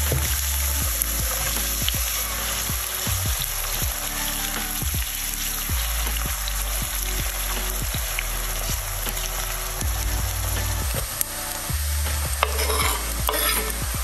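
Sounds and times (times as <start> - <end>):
spatula stirring in pan: 12.4 - 13.8.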